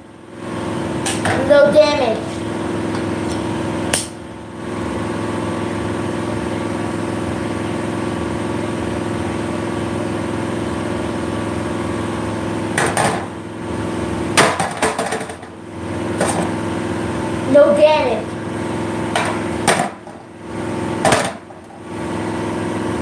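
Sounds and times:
steady machine hum: 0.0s - 23.0s
hammers knocking and clattering: 14.4s - 15.5s, 19.1s - 20.3s, 21.0s - 21.7s.

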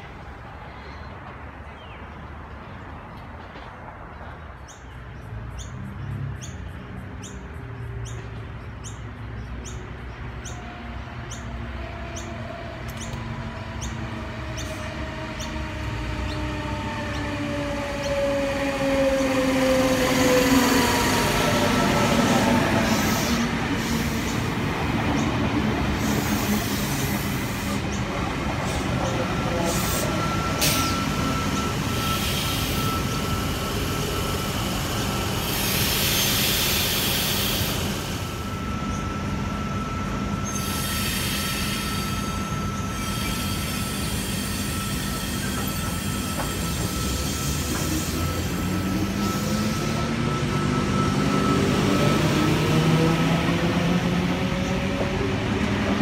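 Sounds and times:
train wheels rumbling on rail: 0.0s - 56.0s
train whine rising in pitch: 10.6s - 56.0s
high wheel squeal: 11.3s - 55.1s
burst of hiss: 35.4s - 38.2s.

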